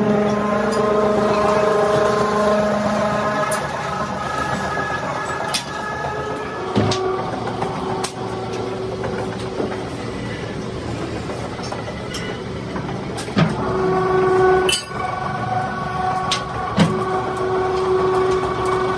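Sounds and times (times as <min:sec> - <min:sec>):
machinery hum: 0:00.0 - 0:18.9
noisy background: 0:00.0 - 0:18.9.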